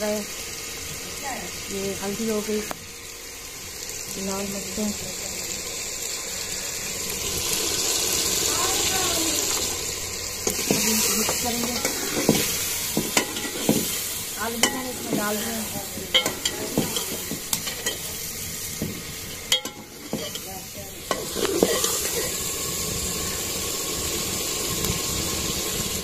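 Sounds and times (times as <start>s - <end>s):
food sizzling in oil: 0.0s - 26.0s
metal ladle scraping pot: 10.4s - 18.1s, 19.4s - 22.3s.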